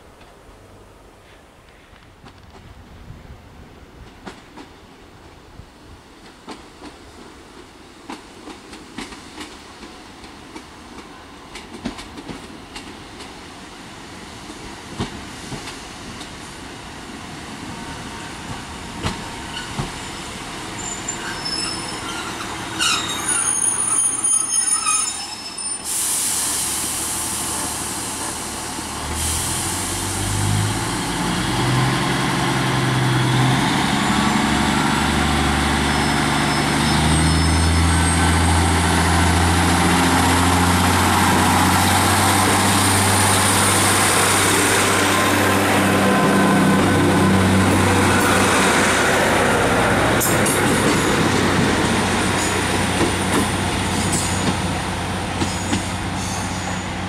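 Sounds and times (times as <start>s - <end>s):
train brake squeal: 19.4s - 28.3s, 35.9s - 38.4s, 53.9s - 54.6s, 55.4s - 57.0s
air hiss: 25.8s - 30.7s
diesel train engine revving: 25.9s - 57.0s.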